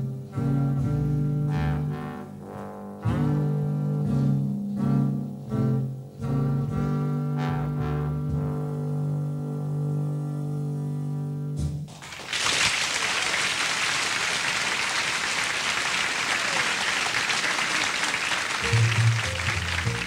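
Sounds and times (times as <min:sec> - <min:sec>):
low bass notes: 0:00.0 - 0:11.6
audience applause: 0:11.9 - 0:20.0.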